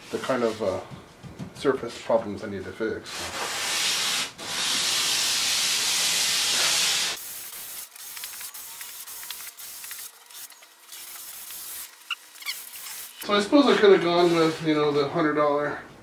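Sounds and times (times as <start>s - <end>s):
sandpaper rubbing on wood: 3.1s - 13.2s, 14.0s - 14.8s.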